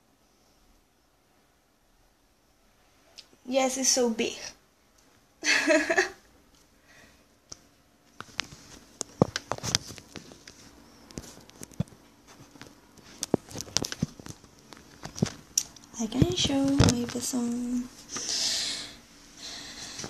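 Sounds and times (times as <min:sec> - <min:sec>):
voice: 0:03.5 - 0:04.6, 0:16.0 - 0:17.9.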